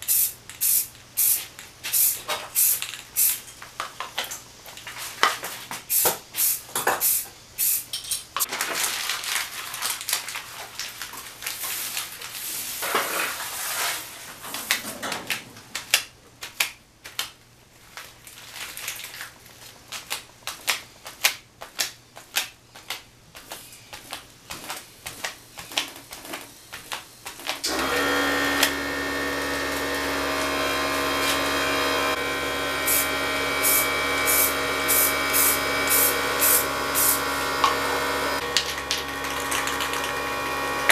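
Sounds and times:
aerosol spray can hissing: 0.0s - 3.4s, 5.9s - 7.9s, 32.9s - 37.2s
motor hum with whir: 27.6s - 40.9s.

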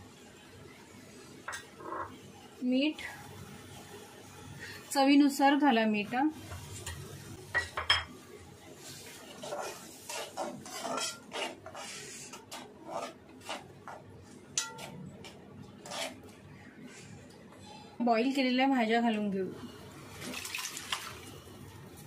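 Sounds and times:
metal spoon scraping a pan: 9.1s - 14.0s, 14.6s - 16.2s.

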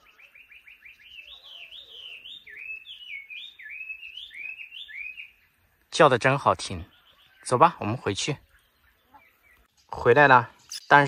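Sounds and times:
bird singing whistles: 0.0s - 5.4s.

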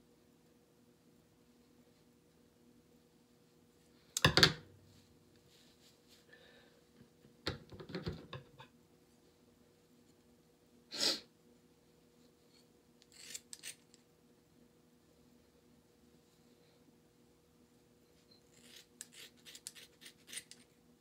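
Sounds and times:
faint steady hum: 0.0s - 21.0s
scissors cutting hair: 13.0s - 14.0s, 18.4s - 20.7s.

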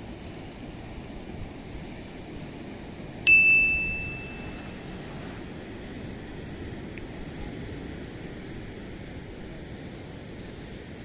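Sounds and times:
wind: 0.0s - 11.0s
bright notification ding: 3.3s - 4.8s.

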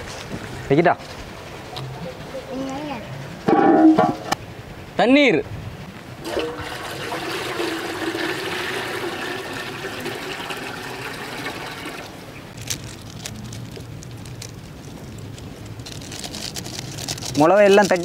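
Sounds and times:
water pouring into metal pot: 6.2s - 12.1s.

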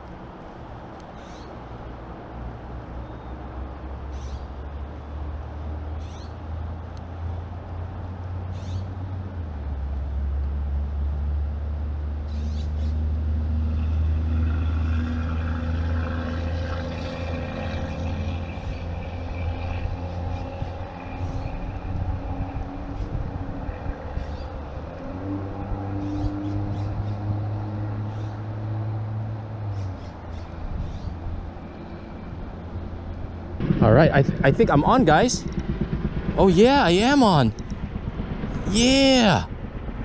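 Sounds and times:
distant heavy vehicle engine rumble: 16.2s - 40.0s
droning tone: 32.0s - 36.6s, 37.4s - 38.7s.

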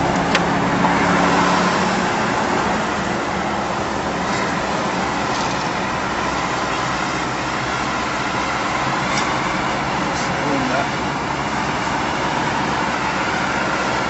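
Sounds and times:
vehicle road and engine noise: 0.0s - 14.0s.

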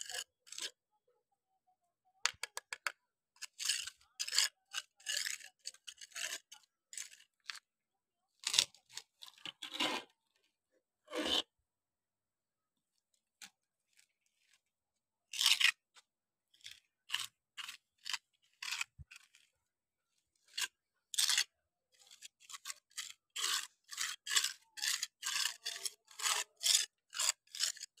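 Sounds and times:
trowel scraping concrete: 3.4s - 7.6s, 8.4s - 10.1s, 11.1s - 11.5s, 15.3s - 15.8s, 16.6s - 19.5s, 20.4s - 28.0s.

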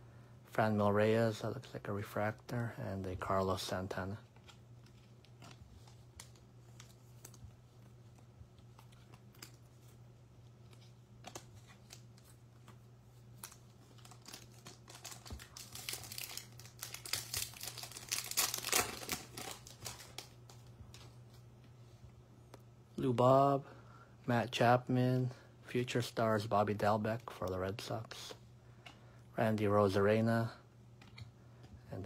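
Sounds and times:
foil wrapper tearing and crinkling: 13.4s - 20.6s.

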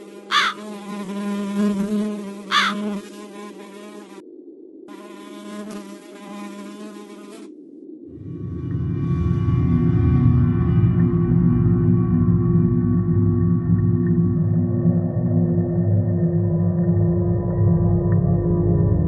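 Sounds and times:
flies buzzing: 0.0s - 4.2s, 4.9s - 7.6s
deep low drone: 8.0s - 19.0s.

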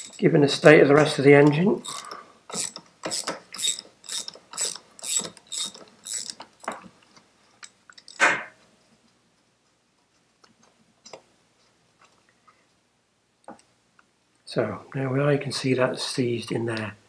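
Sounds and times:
socket ratchet clicking: 1.4s - 6.8s.

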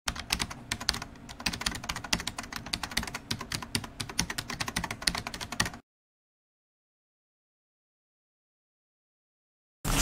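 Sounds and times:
keyboard typing: 0.1s - 5.8s.

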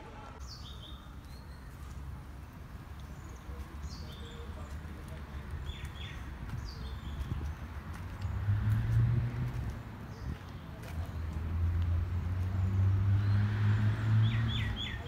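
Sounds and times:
footsteps on concrete steps: 1.2s - 12.6s.

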